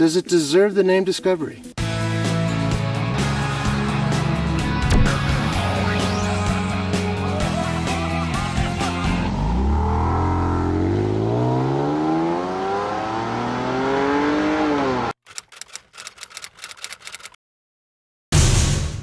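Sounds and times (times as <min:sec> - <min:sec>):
car engine accelerating hard: 0:08.2 - 0:15.2
rapid clicking: 0:15.2 - 0:17.4.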